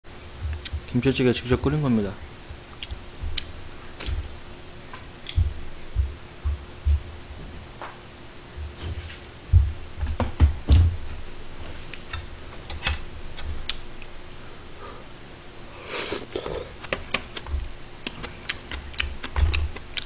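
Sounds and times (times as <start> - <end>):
heavy thumps: 5.3 - 7.6, 9.5 - 11.2
slurping and chewing: 15.9 - 20.0.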